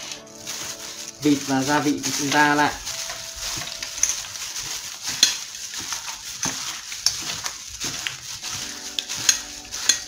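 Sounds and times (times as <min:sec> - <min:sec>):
wet stirring of meat: 0:00.0 - 0:10.0
pieces clicking against metal bowl: 0:03.5 - 0:10.0.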